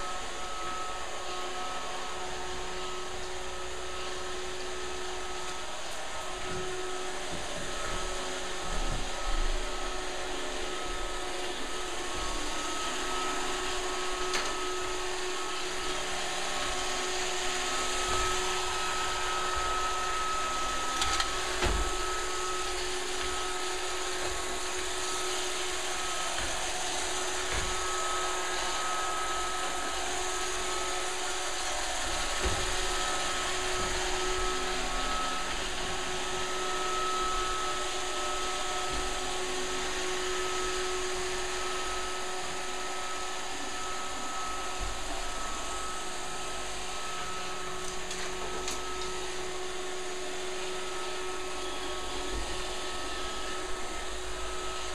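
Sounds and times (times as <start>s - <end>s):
robot vacuum whirring: 0.0s - 54.9s.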